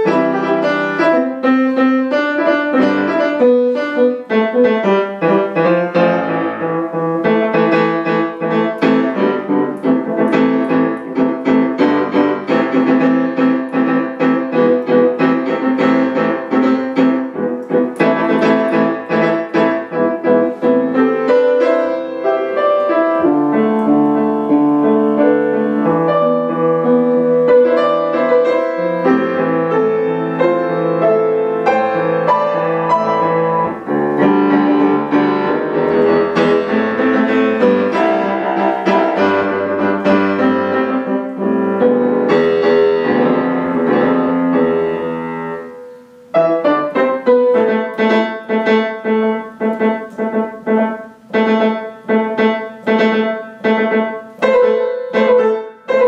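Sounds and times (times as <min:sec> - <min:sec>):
grand piano playing: 0:00.0 - 0:56.0.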